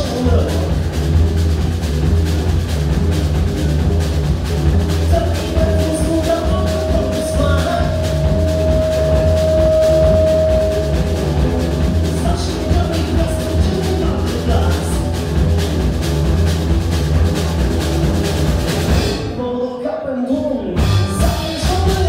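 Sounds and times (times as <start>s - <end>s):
live rock band playing: 0.0s - 19.6s, 20.3s - 22.0s
long high held note: 6.2s - 12.0s.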